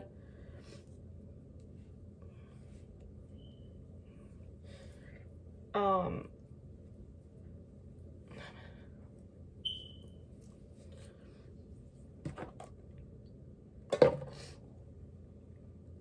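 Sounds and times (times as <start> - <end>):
short high beep: 9.6 - 10.1.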